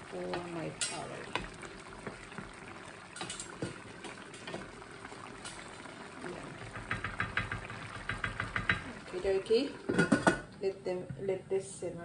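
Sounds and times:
curry simmering and bubbling: 0:00.0 - 0:10.6
spoon knocking against pan: 0:06.6 - 0:08.9.

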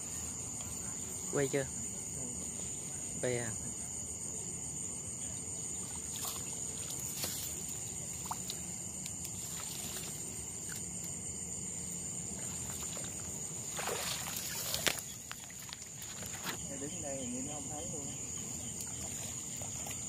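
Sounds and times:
crickets chirping: 0:00.0 - 0:20.0
reed stems rustling: 0:05.7 - 0:17.4.

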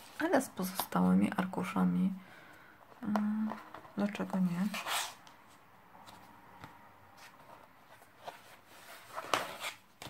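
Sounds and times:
paper rustling and sliding: 0:07.2 - 0:10.0.

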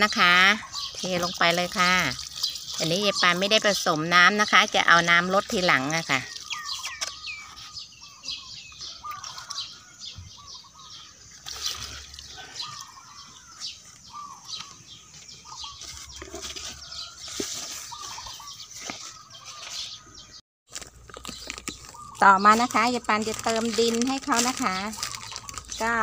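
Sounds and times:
small birds chirping: 0:00.0 - 0:26.0
liquid splashing onto soil: 0:00.9 - 0:04.8, 0:11.4 - 0:12.4.

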